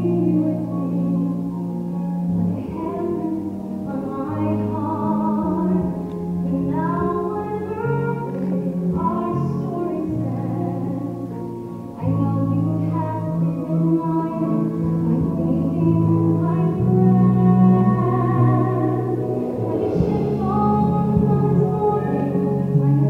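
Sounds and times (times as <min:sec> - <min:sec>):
women singing a ballad: 0:02.4 - 0:11.1, 0:12.0 - 0:23.0
orchestral accompaniment: 0:15.0 - 0:23.0.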